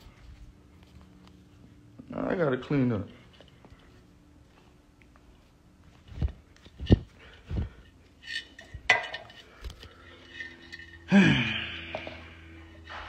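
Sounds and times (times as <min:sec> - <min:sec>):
glass clattering: 0:08.2 - 0:09.4.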